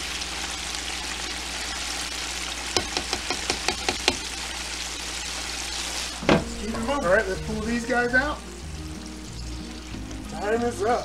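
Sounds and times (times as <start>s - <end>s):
deep-frying sizzle: 0.0s - 11.0s
skimmer tapping on fryer: 2.7s - 4.3s, 6.2s - 7.1s.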